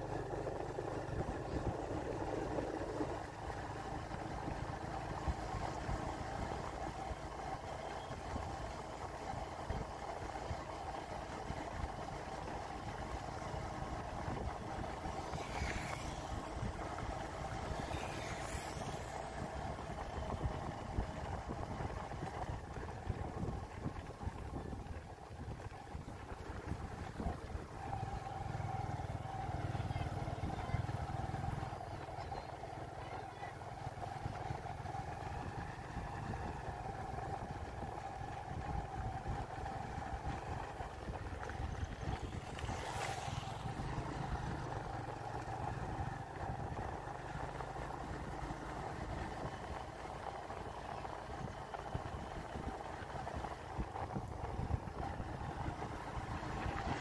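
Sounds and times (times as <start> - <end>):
road and wind noise: 0.0 - 57.0
vehicle engine running: 0.0 - 57.0
motorcycle passing by: 12.2 - 24.7, 26.0 - 57.0.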